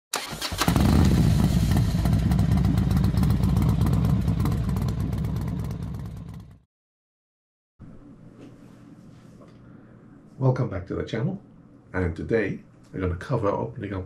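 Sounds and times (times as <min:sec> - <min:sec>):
motorcycle engine running: 0:00.6 - 0:06.7.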